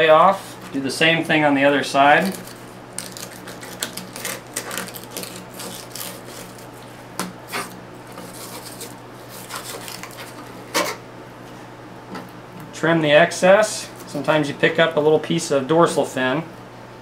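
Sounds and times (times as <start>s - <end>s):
knife sawing through fish bones: 2.3s - 6.8s, 7.5s - 10.4s
knife scraping plastic cutting board: 7.5s - 11.0s.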